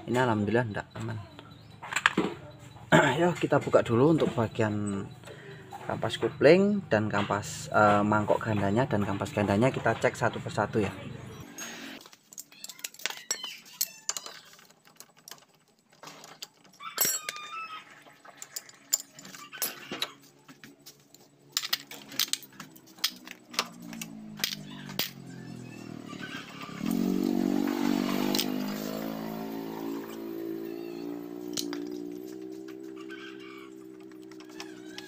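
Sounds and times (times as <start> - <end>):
metal parts clinking: 12.0 - 17.5, 18.3 - 25.3, 26.9 - 29.4, 31.3 - 32.8
engine running: 21.9 - 35.0.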